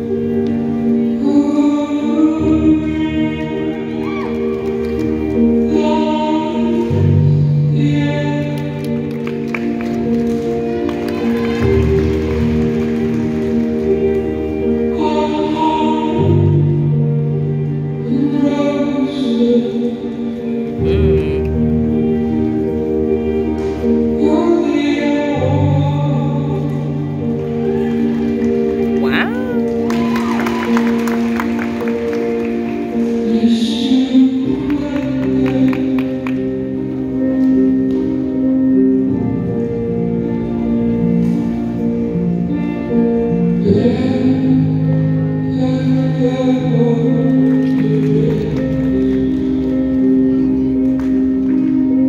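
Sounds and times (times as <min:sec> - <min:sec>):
show music over sound system: 0:00.0 - 0:52.0
person singing: 0:00.9 - 0:04.5, 0:14.8 - 0:21.7, 0:28.9 - 0:29.9, 0:33.0 - 0:37.0, 0:43.6 - 0:49.3
deep held bass note: 0:20.8 - 0:21.6.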